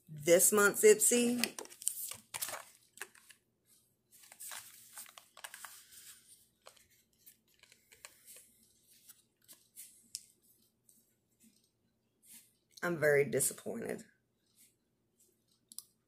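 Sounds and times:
plastic packaging rustling: 1.1s - 3.4s, 4.1s - 10.0s.

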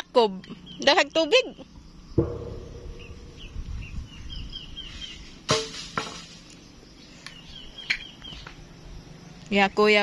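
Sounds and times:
bird chirping: 0.0s - 5.5s, 6.5s - 9.5s
sharp knocks on concrete cover: 5.5s - 6.4s.

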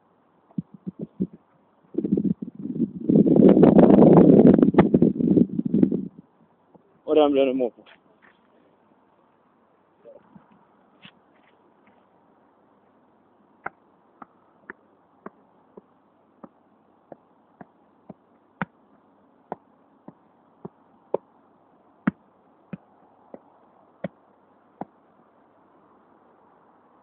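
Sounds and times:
foot tapping football: 13.6s - 18.8s.

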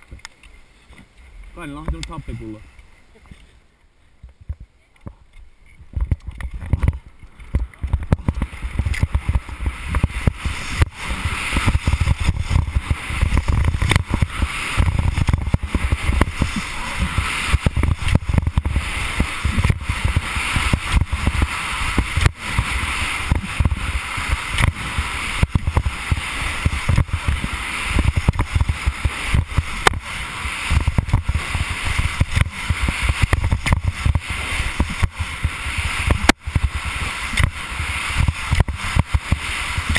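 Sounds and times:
wind rumble on microphone: 4.2s - 39.9s
ski edges scraping snow: 6.5s - 39.9s.

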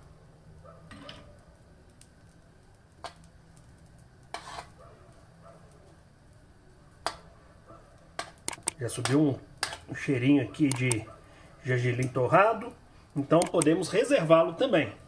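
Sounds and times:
spoon scraping frying pan: 4.3s - 4.8s.

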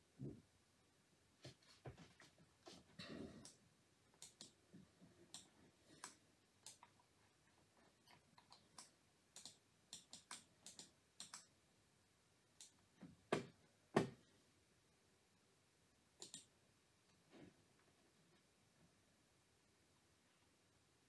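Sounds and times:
computer mouse clicks: 4.2s - 4.6s, 5.3s - 7.1s, 8.0s - 11.5s, 12.6s - 12.8s, 16.2s - 16.5s.

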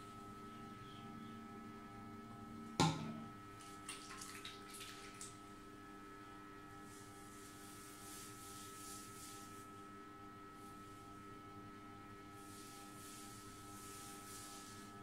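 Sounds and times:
steady electrical hum: 0.0s - 15.0s
sharp knock in tiled room: 2.8s - 3.2s.

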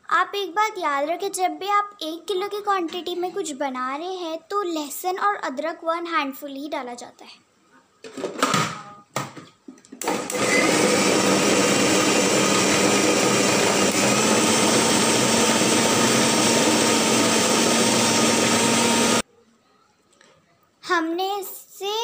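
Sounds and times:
food processor motor running: 10.0s - 19.2s.

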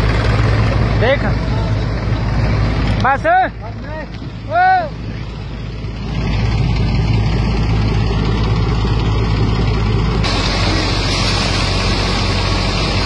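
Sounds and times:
combine harvester engine drone: 0.0s - 13.0s
grain pouring from auger: 10.2s - 13.0s.

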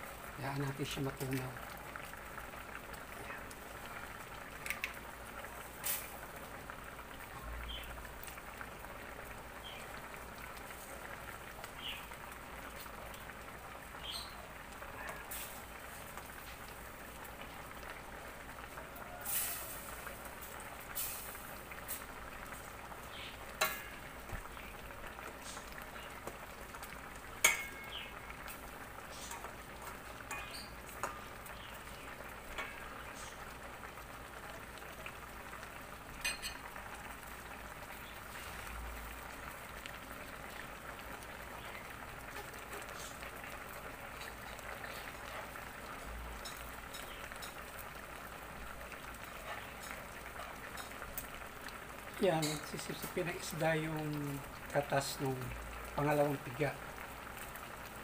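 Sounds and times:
liquid simmering and bubbling: 0.0s - 58.0s
metal spoon clinking on pot: 27.4s - 28.0s, 36.2s - 36.7s.

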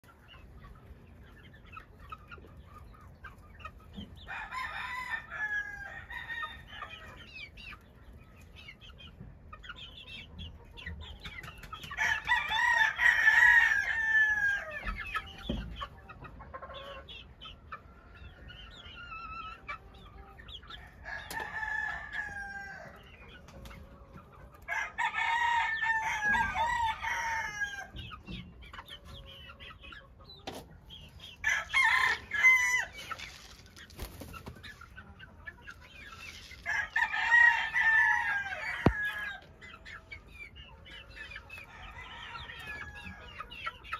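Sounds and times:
flock of chickens clucking: 0.0s - 43.9s
rooster crowing: 4.3s - 6.5s, 24.7s - 27.9s, 31.4s - 32.9s, 41.7s - 43.3s.

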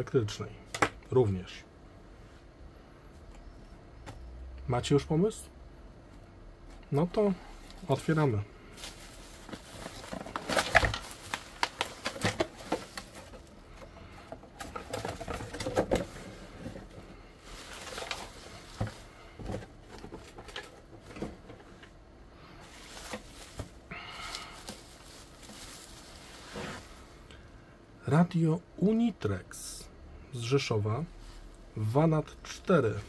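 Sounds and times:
bubble wrap crinkling: 7.8s - 13.6s, 17.4s - 19.2s, 22.6s - 27.1s.

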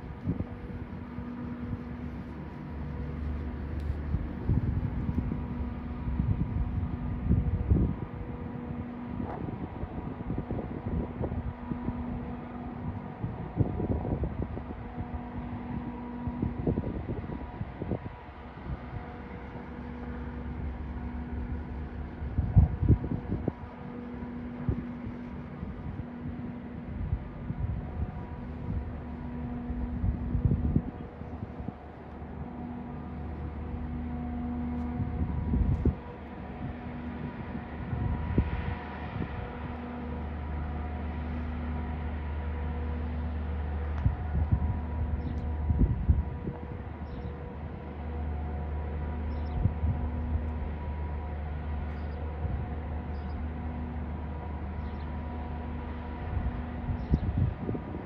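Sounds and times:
steady machine hum: 0.0s - 58.0s
wind buffeting microphone: 0.0s - 58.0s
low rumbling thumps: 18.9s - 40.1s.

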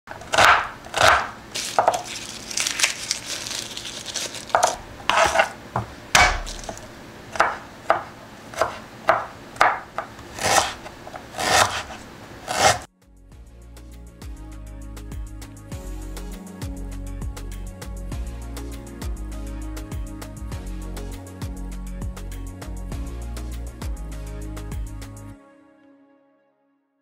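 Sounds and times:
knife chopping on wooden board: 0.1s - 2.1s, 4.5s - 12.9s
knife scraping board: 0.1s - 2.7s, 4.5s - 12.9s.

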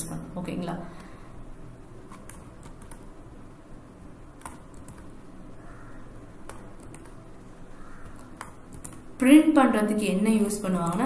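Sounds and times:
keyboard keystrokes: 2.1s - 3.0s, 4.4s - 5.1s, 8.0s - 9.0s.

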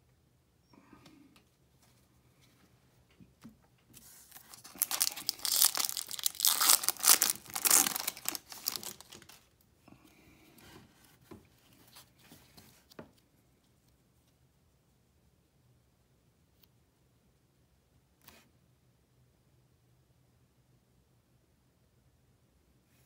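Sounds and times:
cards rustling: 4.0s - 9.5s
foil wrapper tearing and crinkling: 4.3s - 9.4s.

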